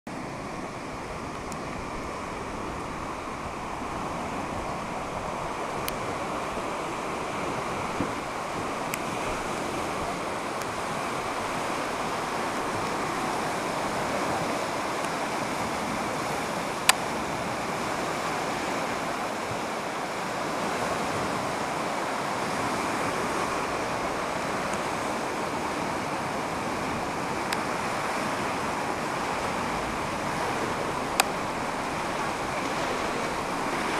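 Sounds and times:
floodwater rushing: 0:00.1 - 0:33.9.

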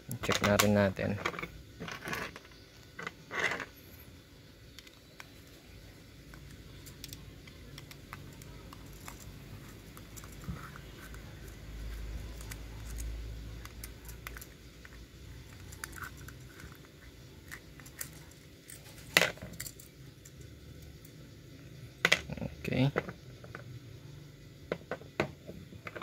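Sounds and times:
small metal parts clicking: 0:06.3 - 0:10.8, 0:12.2 - 0:21.2.

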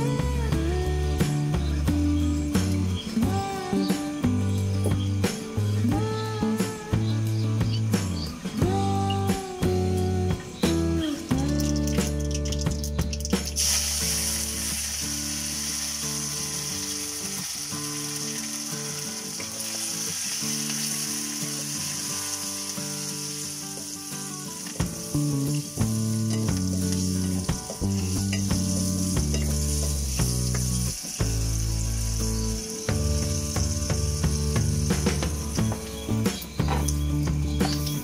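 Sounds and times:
spices sizzling in a pot: 0:00.0 - 0:38.0.

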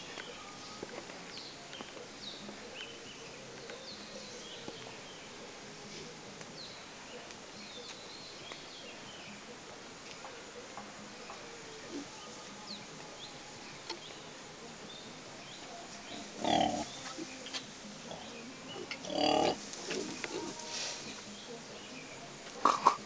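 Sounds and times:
quiet rustling: 0:00.0 - 0:23.0
pigs calling loudly: 0:16.2 - 0:16.9, 0:18.8 - 0:20.6.

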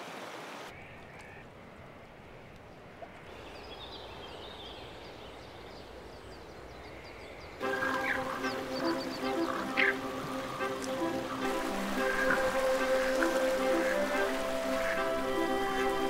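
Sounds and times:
river flowing: 0:00.0 - 0:16.0
music: 0:07.6 - 0:16.0.

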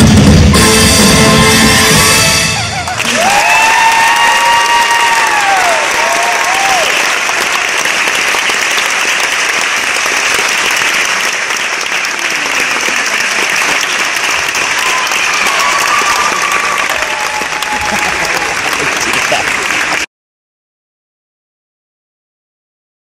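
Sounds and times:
music: 0:00.0 - 0:03.2
person cheering: 0:02.6 - 0:07.0, 0:14.6 - 0:19.6
audience applauding: 0:02.6 - 0:20.1.

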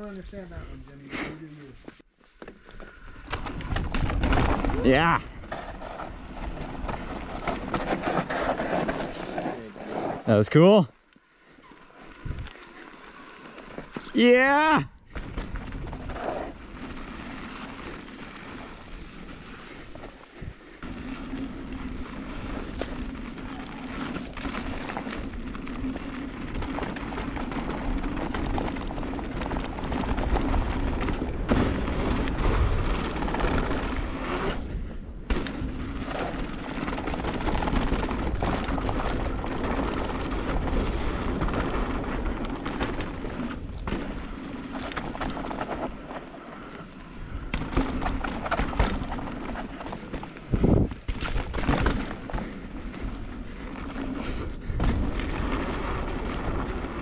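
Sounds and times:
bike tyres rolling over dirt: 0:00.0 - 0:57.0
bike knocking and rattling: 0:01.8 - 0:10.2, 0:11.7 - 0:57.0
wind buffeting microphone: 0:12.2 - 0:12.6, 0:50.5 - 0:51.1.

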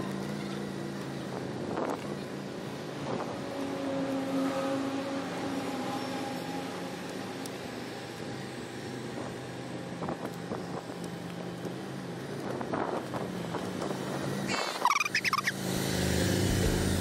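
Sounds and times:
motorcycle engine running slowly: 0:15.6 - 0:17.0.

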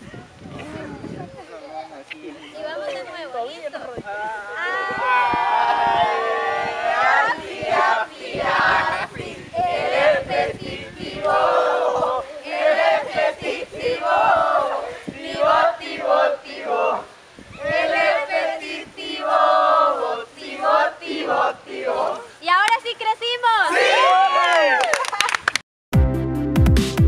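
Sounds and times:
group chanting in unison: 0:04.6 - 0:22.4, 0:23.7 - 0:24.2.

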